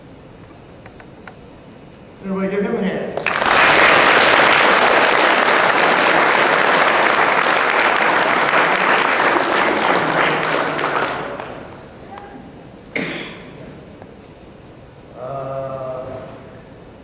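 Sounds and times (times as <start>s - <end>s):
audience applauding: 3.2s - 11.8s.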